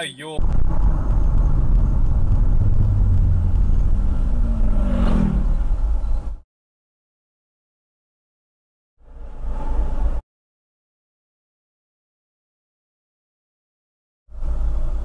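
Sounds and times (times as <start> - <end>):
car road and engine rumble: 0.0 - 6.4, 9.0 - 10.2, 14.3 - 15.0.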